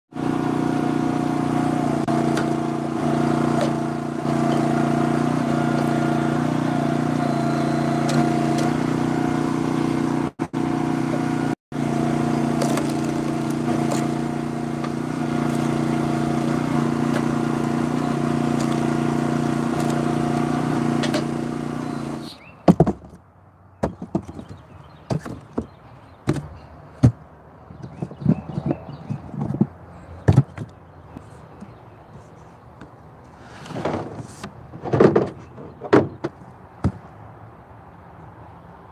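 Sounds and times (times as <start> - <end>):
log splitter engine running: 0.1 - 22.4
wedge splitting wood: 1.5 - 23.2, 23.8 - 27.2
wood chunks knocking into a box: 12.5 - 17.4, 22.6 - 23.2.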